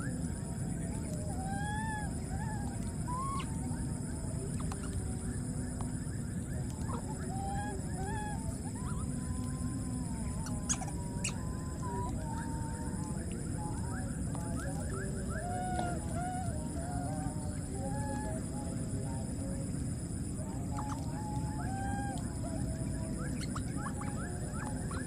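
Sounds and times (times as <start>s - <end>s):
constant low rumble: 0.0s - 25.0s
baby monkey coo calls: 1.4s - 3.5s, 6.8s - 9.5s, 20.8s - 22.2s.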